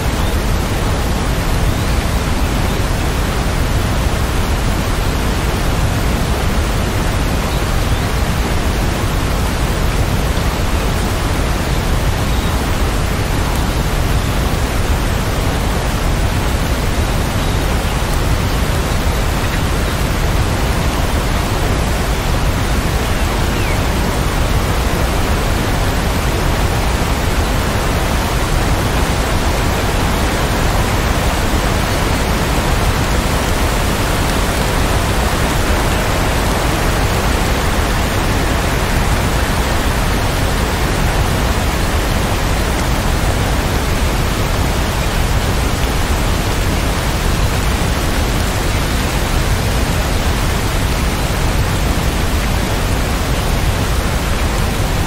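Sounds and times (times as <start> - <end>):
steady rain hiss: 0.0 - 55.0.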